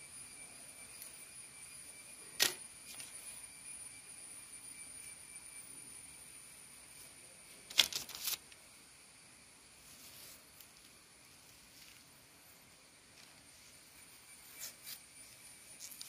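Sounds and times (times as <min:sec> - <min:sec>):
faint high-pitched whine: 0:00.0 - 0:16.0.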